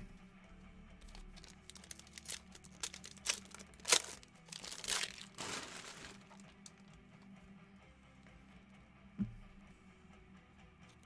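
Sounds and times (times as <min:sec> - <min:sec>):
wrapper rustling: 0:01.1 - 0:06.7
foil wrapper crinkling and tearing: 0:01.1 - 0:06.8.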